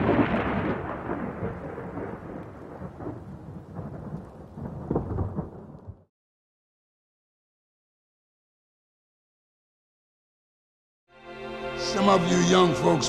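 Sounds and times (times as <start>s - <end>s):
rolling thunder rumble: 0.0s - 6.1s.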